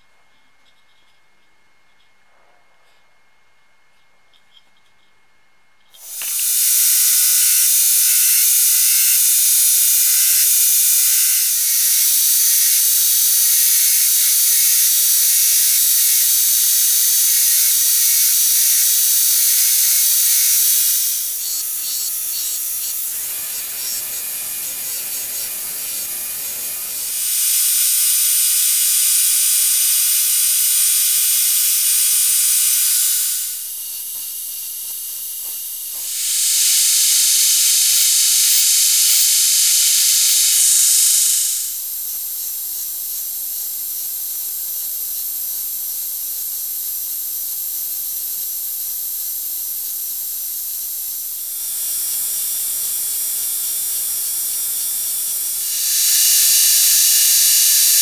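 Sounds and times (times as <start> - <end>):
belt grinder grinding: 6.0 - 44.6, 51.2 - 58.0.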